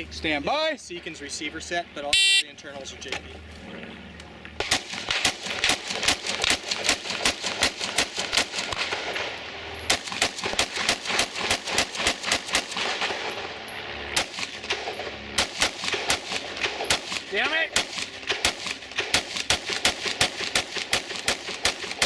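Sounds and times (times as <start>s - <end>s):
rifle shots fired rapidly: 4.6s - 9.3s, 9.9s - 13.4s, 14.2s - 22.0s.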